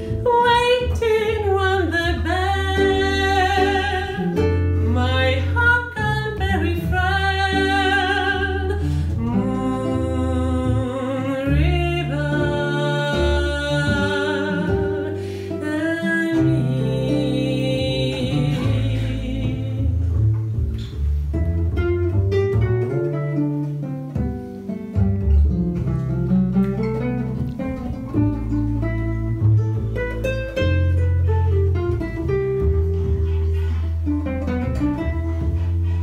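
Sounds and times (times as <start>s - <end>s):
woman singing slow song: 0.0s - 20.2s
plucked double bass: 0.0s - 36.0s.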